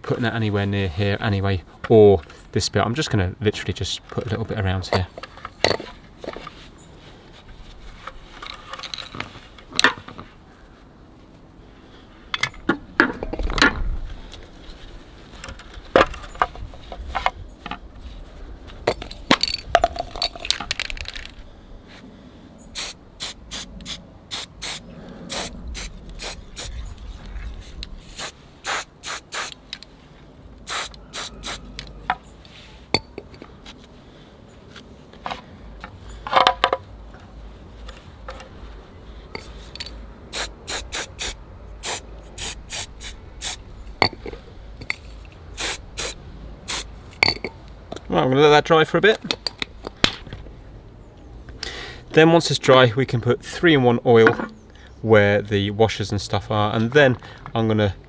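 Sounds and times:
clicks and handling noise: 7.9 - 10.3, 18.7 - 21.4, 34.6 - 40.0
aerosol can spraying in puffs: 22.8 - 26.8, 27.6 - 29.6, 30.6 - 31.6, 40.3 - 43.6, 45.6 - 46.9.

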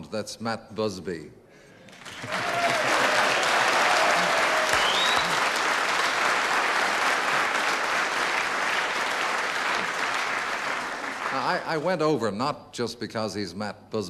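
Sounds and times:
audience applauding: 1.8 - 11.9.

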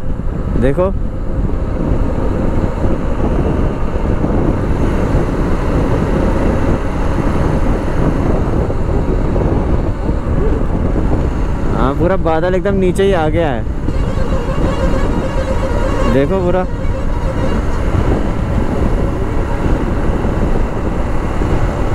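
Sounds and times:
wind rush on microphone: 0.0 - 21.9
motorcycle engine running: 13.1 - 21.9.

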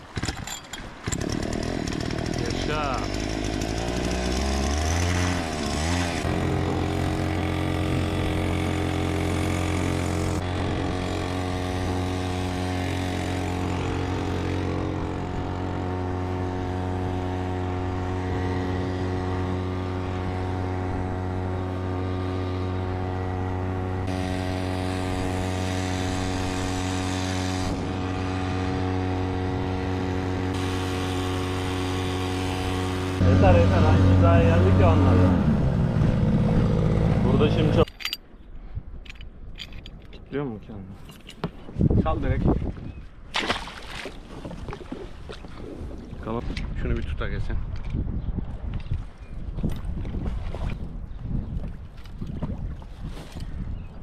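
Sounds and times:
outboard motor running: 0.1 - 38.2.

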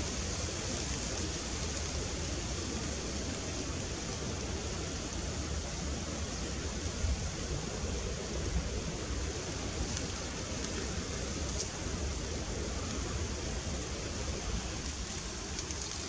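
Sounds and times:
faint ticks: 14.8 - 16.0.

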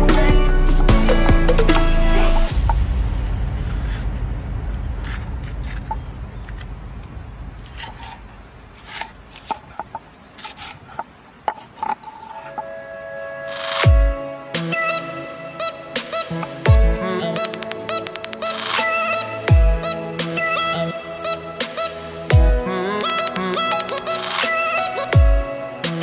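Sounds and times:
low rumble: 0.9 - 8.8.

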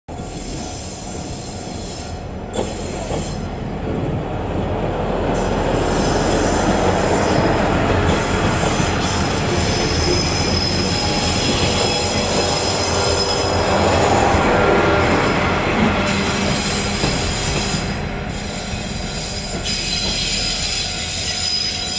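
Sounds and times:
diesel railcar passing: 0.1 - 21.9
high wheel squeal: 8.1 - 14.3, 16.1 - 21.9.

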